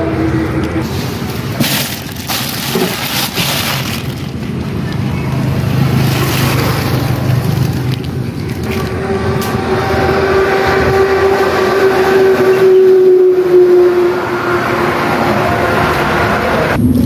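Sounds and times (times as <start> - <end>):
low engine hum: 0.0 - 17.0
plastic bags rustling: 0.8 - 8.9
ice blocks knocking in cooler: 1.3 - 4.4.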